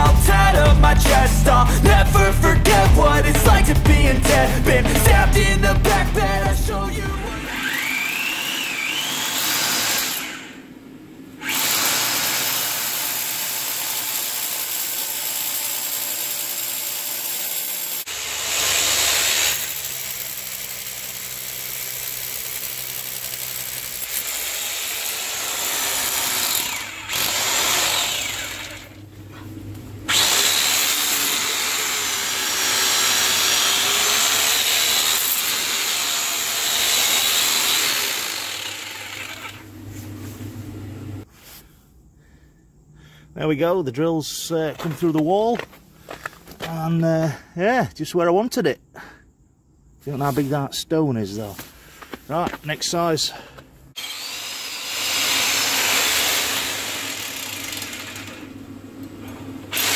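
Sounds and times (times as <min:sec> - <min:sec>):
hammer drill boring through stone: 0:07.4 - 0:10.6, 0:11.4 - 0:29.0, 0:30.1 - 0:39.6, 0:54.0 - 0:58.6.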